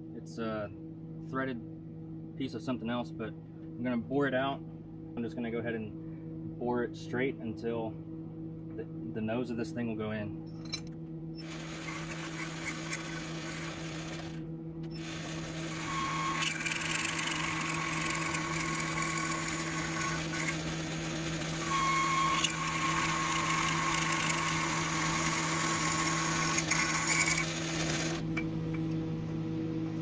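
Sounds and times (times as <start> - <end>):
cutting hiss and whine: 11.4 - 30.0
lathe motor humming: 11.4 - 30.0.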